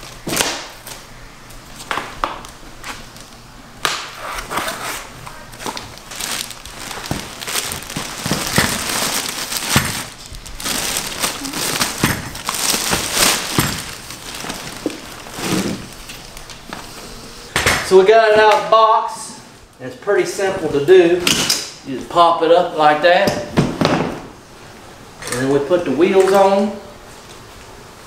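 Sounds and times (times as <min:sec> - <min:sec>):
plastic bag crinkling: 0:04.7 - 0:16.7.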